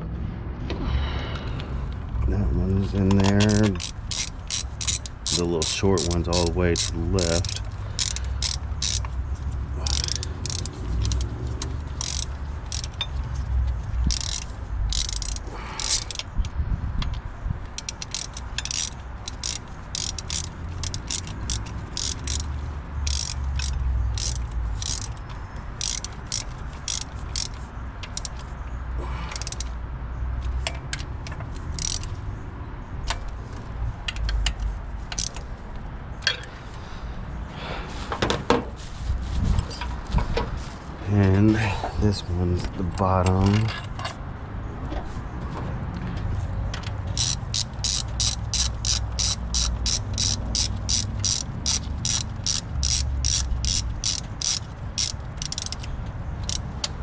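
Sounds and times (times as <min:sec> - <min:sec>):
socket ratchet clicking: 0:03.0 - 0:28.6, 0:29.3 - 0:29.8, 0:30.4 - 0:32.2, 0:34.0 - 0:35.5, 0:46.7 - 0:57.0.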